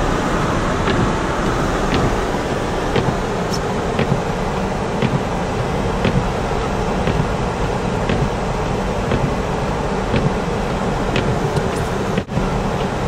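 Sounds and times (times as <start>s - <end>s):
car road and cabin noise: 0.0s - 13.0s.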